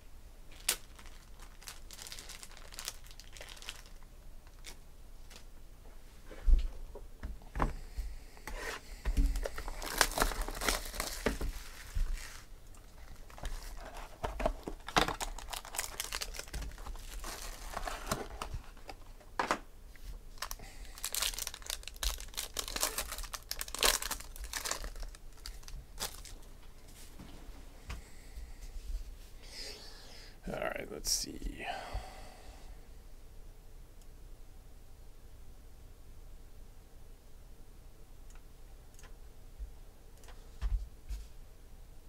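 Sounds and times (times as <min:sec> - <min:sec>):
plastic wrap tearing and crinkling: 0:00.5 - 0:05.4, 0:09.4 - 0:19.0, 0:20.3 - 0:26.5.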